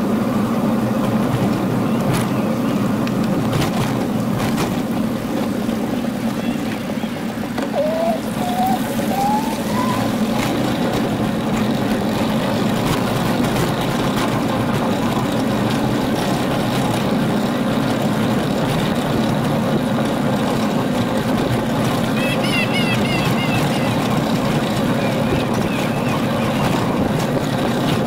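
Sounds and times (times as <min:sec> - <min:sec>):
bicycle tyre and wind noise: 0:00.0 - 0:28.0
short rising whistles: 0:07.7 - 0:10.5.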